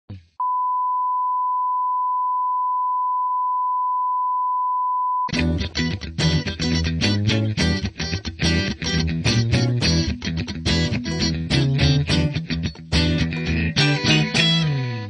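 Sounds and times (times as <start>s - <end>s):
band music with electric guitar: 5.3s - 15.0s.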